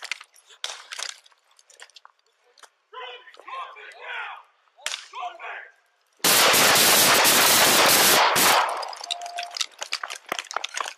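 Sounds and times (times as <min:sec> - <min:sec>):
rapid gunshots: 0:06.2 - 0:08.9.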